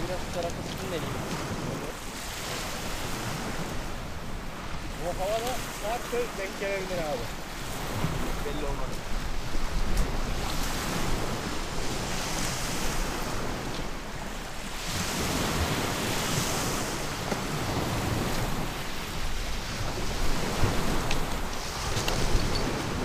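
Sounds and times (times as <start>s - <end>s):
waves breaking on pebbles: 0.0s - 23.0s
wind buffeting microphone: 0.0s - 23.0s.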